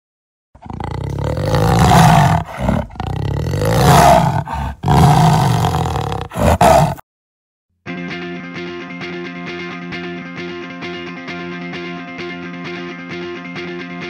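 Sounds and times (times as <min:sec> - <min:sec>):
big cat roaring: 0:00.6 - 0:07.0.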